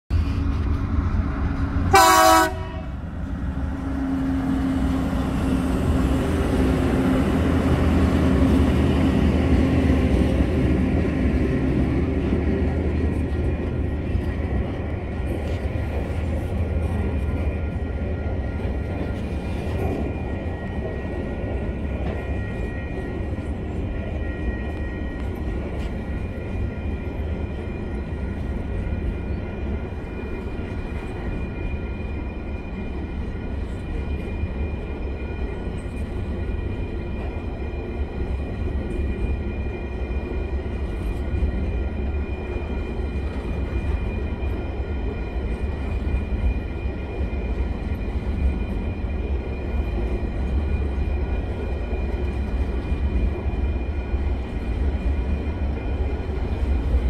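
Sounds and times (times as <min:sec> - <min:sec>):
freight wagons rumbling on rails: 0:00.1 - 0:57.0
locomotive horn blast: 0:01.9 - 0:03.0.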